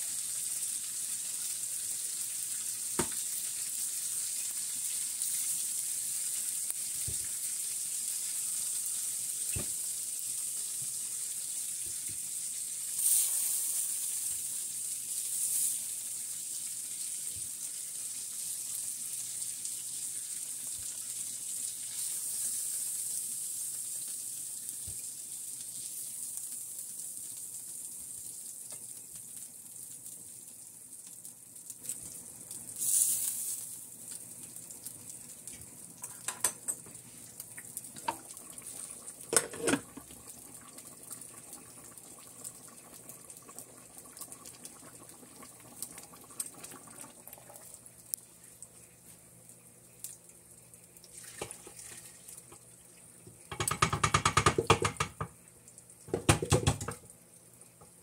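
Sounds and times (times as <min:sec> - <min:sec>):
faint high hiss: 0:00.0 - 0:39.8
short loud hiss: 0:13.0 - 0:14.4
metal bowl clattering: 0:39.3 - 0:39.9
metal utensils knocking: 0:39.4 - 0:39.9.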